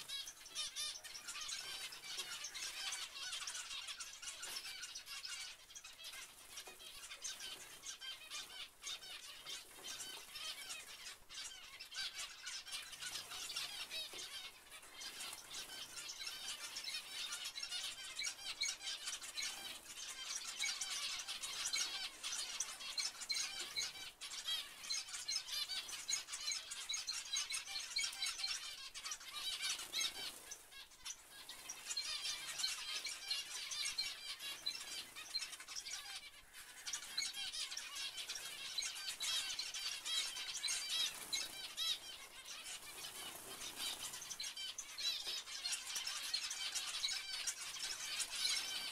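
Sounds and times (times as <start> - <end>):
finches chirping: 0.0 - 48.9.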